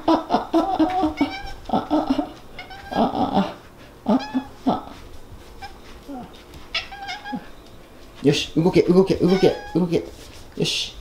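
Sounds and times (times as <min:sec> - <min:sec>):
cat calling: 0:00.8 - 0:05.0, 0:05.6 - 0:07.6, 0:09.1 - 0:09.9.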